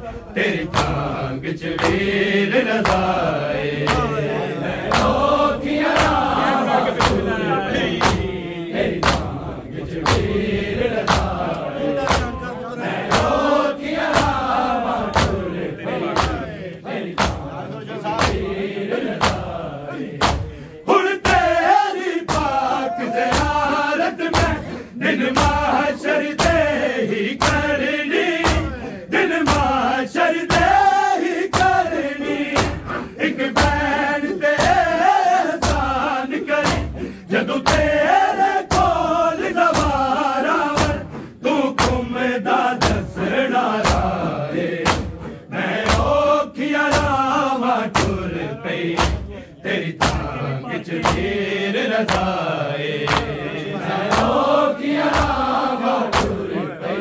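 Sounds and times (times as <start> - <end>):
men chanting a lament: 0.0 - 57.0
chest-beating thuds: 4.8 - 19.6, 20.2 - 21.7, 22.3 - 25.8, 28.4 - 29.8, 31.5 - 33.9, 44.8 - 46.3, 47.9 - 50.4, 56.0 - 56.5.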